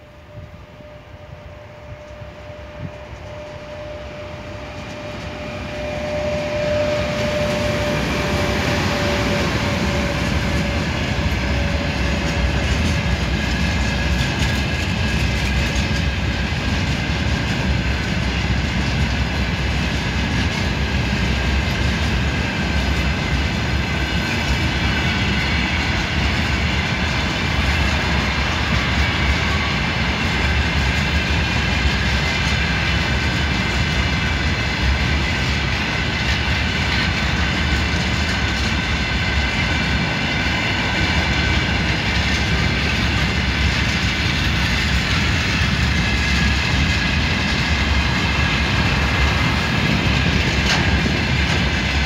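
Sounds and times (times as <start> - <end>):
electric locomotive whine: 0.0 - 52.0
high-pitched wheel ringing on rails: 0.0 - 52.0
freight wagons rumbling past: 36.8 - 52.0.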